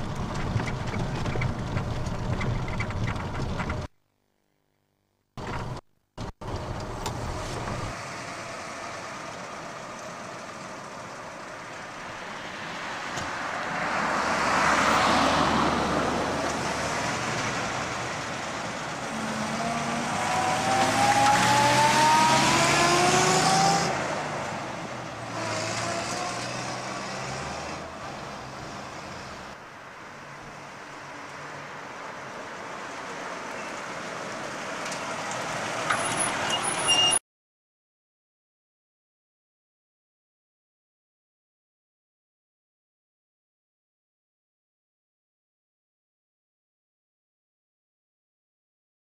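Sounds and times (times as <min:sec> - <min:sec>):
car engine driving by: 0:05.4 - 0:37.2.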